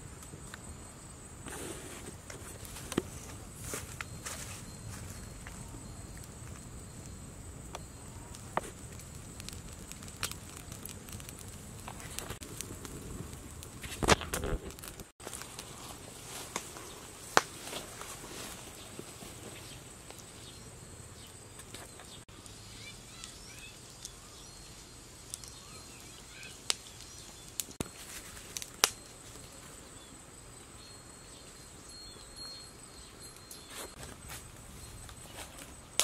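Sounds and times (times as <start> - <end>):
high insect drone: 0.0 - 10.4, 27.8 - 36.0
campfire pops and crackles: 5.2 - 18.3, 25.2 - 29.4, 33.9 - 36.0
faint bird chirps: 19.5 - 27.6.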